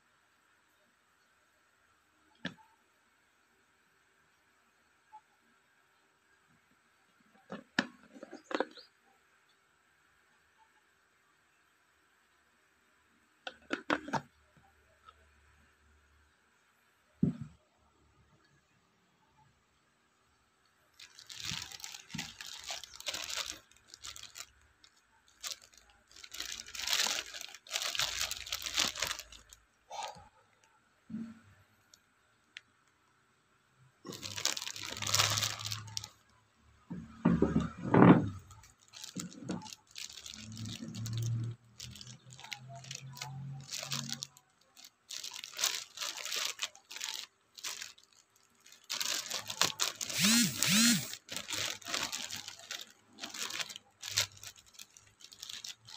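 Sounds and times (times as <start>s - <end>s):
plastic bag crinkling: 7.4s - 8.9s, 20.9s - 30.3s, 34.0s - 36.3s, 37.2s - 55.9s.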